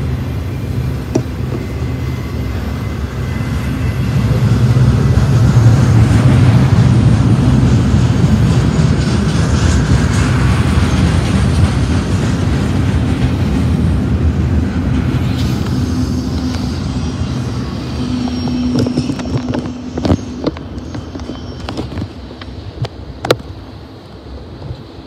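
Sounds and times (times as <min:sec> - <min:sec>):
freight train wheels rumbling on rail: 0:00.0 - 0:25.0
brief steady tone: 0:15.9 - 0:22.1.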